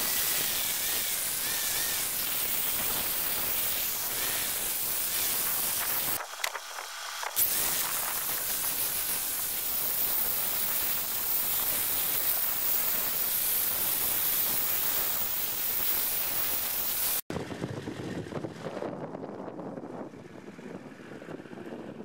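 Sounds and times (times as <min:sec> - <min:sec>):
wire brush grinder scouring metal: 0:00.0 - 0:17.2.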